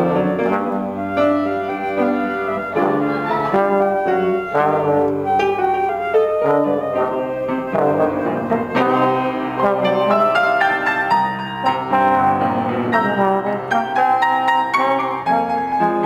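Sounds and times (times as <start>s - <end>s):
flute: 0.0s - 11.5s
piano: 0.0s - 16.0s
slide trombone: 0.0s - 16.0s.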